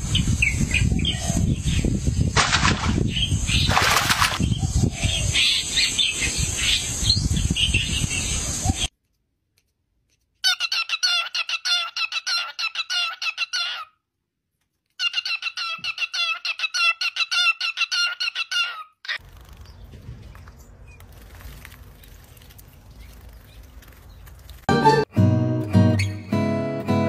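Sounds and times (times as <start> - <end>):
cockatiel chirping: 10.4 - 13.9.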